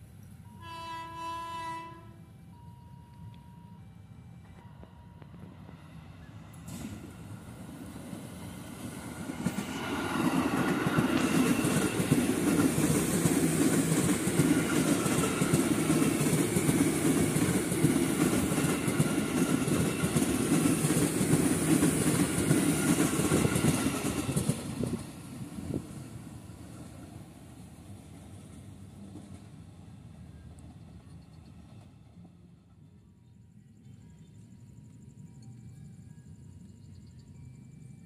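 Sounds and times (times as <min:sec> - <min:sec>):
train wheels rumbling over rails: 0:04.4 - 0:34.2.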